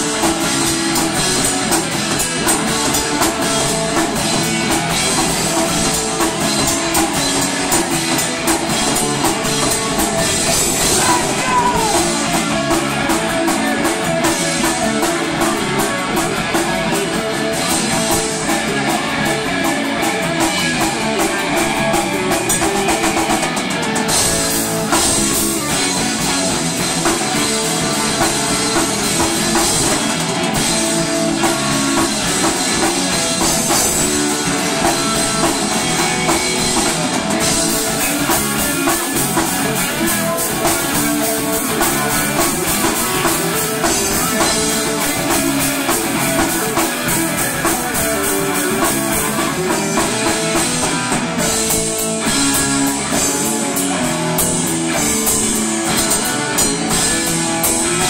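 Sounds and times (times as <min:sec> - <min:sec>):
drum kit: 0:00.0 - 0:58.0
electric guitars: 0:00.0 - 0:58.0.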